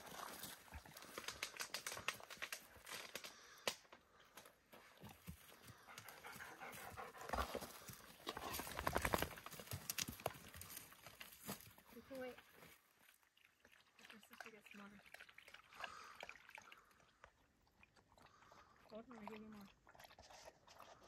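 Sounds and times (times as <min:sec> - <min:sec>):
dogs panting hard: 0:05.3 - 0:08.8.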